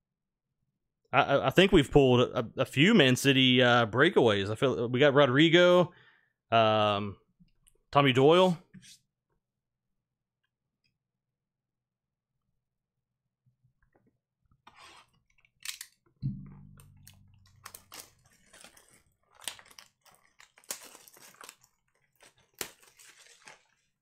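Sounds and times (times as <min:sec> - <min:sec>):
dull thump: 0:16.2 - 0:17.0
plastic shrink wrap tearing: 0:17.1 - 0:24.0.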